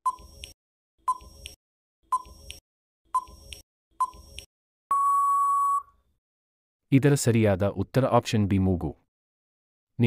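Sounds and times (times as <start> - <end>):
long steady beep: 4.9 - 5.9.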